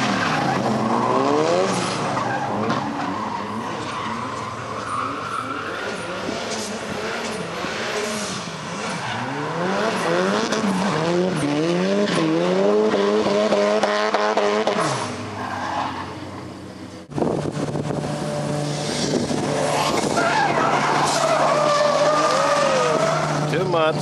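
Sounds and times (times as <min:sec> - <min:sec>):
car engine revving: 0:00.0 - 0:24.0
tyres squealing: 0:19.7 - 0:24.0.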